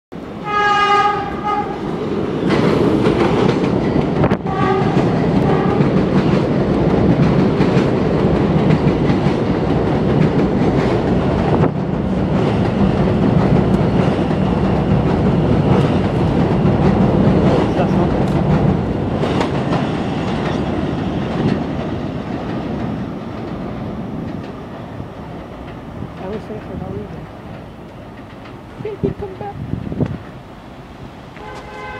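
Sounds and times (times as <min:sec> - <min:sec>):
train rumbling: 0:00.1 - 0:31.9
train horn blast: 0:00.4 - 0:01.9, 0:04.3 - 0:06.0, 0:31.4 - 0:31.9
wheels clacking over rail joints: 0:01.2 - 0:31.9.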